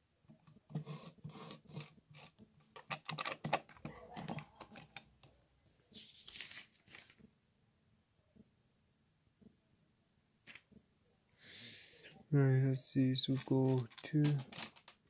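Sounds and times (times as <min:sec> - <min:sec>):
plastic bricks clicking: 0:02.2 - 0:05.2.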